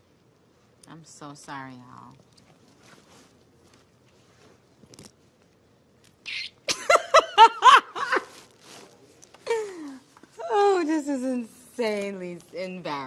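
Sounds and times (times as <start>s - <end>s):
woman laughing: 6.7s - 8.4s, 9.4s - 10.7s.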